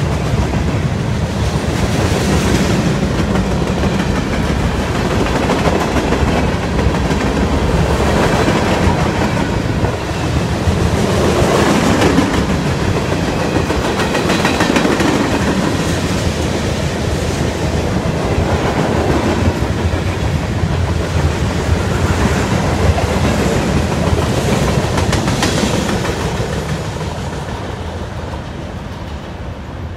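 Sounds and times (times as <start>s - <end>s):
train wheels clattering over rail joints: 1.5s - 16.7s, 17.3s - 29.2s.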